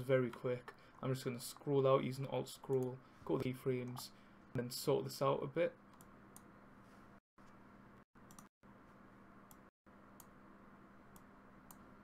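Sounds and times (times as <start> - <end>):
low steady hum: 0.0 - 12.0
computer mouse clicks: 8.2 - 8.5, 10.2 - 10.4.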